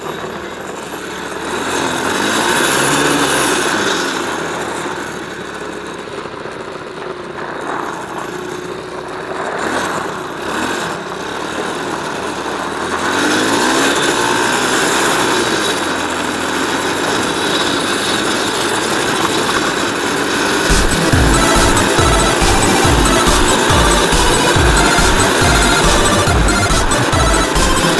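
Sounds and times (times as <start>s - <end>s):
quad bike engine running: 0.0s - 27.9s
music: 20.7s - 27.9s.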